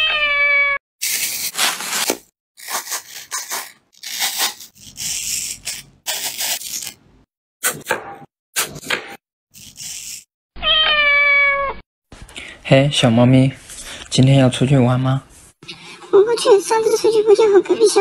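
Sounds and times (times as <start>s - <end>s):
cat meow: 0.0s - 0.8s, 10.6s - 11.8s
knife cutting crisp apple: 1.0s - 7.0s, 7.6s - 10.3s.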